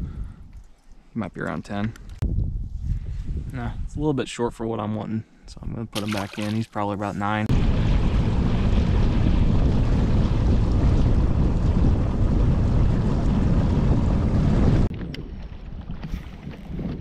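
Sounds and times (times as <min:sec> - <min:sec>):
wind buffeting microphone: 0:00.0 - 0:00.7, 0:01.9 - 0:04.2, 0:07.5 - 0:17.0
lapping water: 0:06.0 - 0:06.7.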